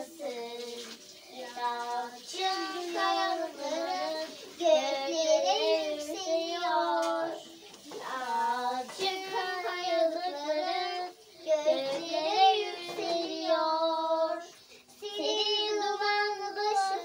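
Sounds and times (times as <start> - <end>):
child singing: 0.0 - 17.0.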